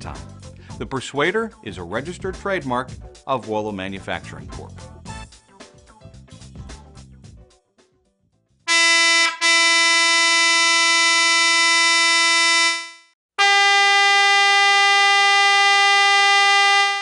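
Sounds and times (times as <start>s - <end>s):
high-tone horn blast: 8.7s - 17.0s
low-tone electric horn blast: 8.7s - 17.0s.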